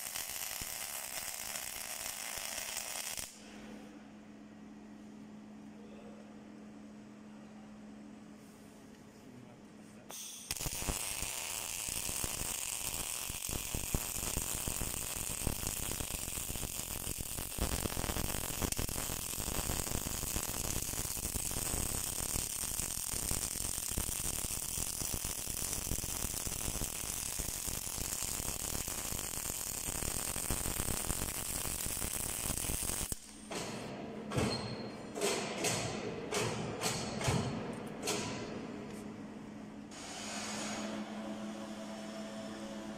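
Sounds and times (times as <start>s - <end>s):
welding arc crackling: 0.0s - 3.4s, 10.1s - 33.4s
faint hum: 3.2s - 11.8s, 37.7s - 42.9s.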